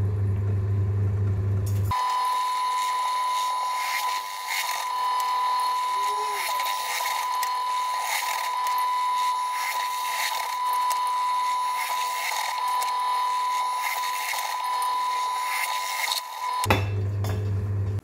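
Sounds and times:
drill press whine: 1.7s - 18.0s
drill bit rasping through metal: 1.9s - 16.7s.

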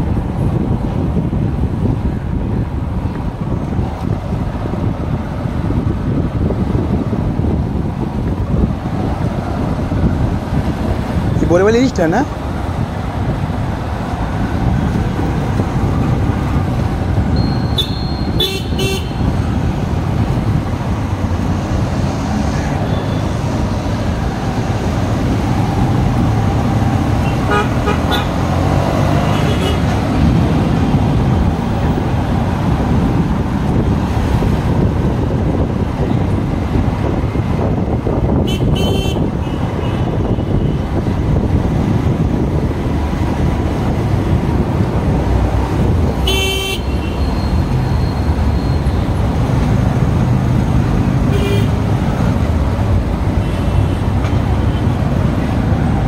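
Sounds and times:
vehicle horns tooting: 17.4s - 19.3s, 27.2s - 28.4s, 29.2s - 29.9s, 38.4s - 40.8s, 46.2s - 48.9s, 51.3s - 51.8s.

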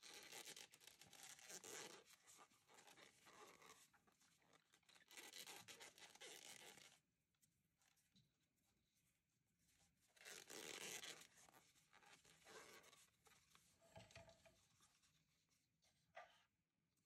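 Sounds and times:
yarn rustling through stitches: 9.0s - 15.6s.

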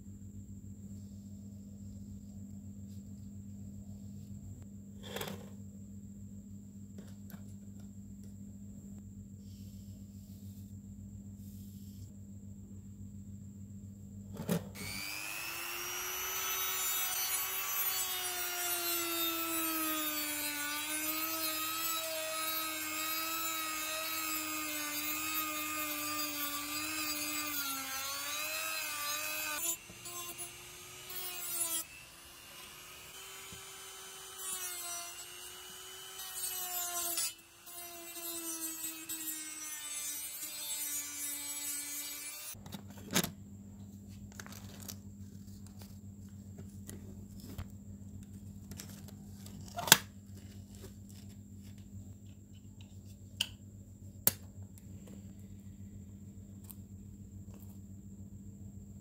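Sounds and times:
handheld power tool whining: 14.8s - 42.6s.

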